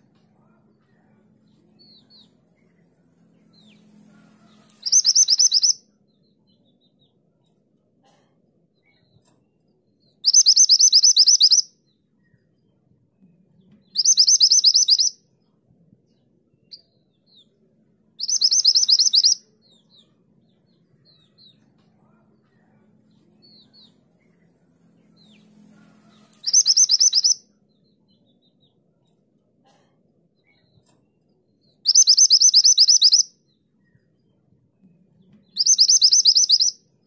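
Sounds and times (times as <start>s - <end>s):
bird song rapid high notes: 4.8s - 5.8s, 10.3s - 11.7s, 13.9s - 15.2s, 18.2s - 19.4s, 26.4s - 27.5s, 31.8s - 33.3s, 35.5s - 36.8s.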